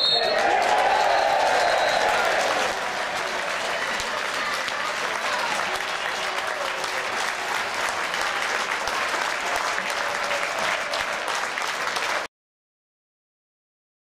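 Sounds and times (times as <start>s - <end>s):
crowd applauding: 0.0s - 12.3s.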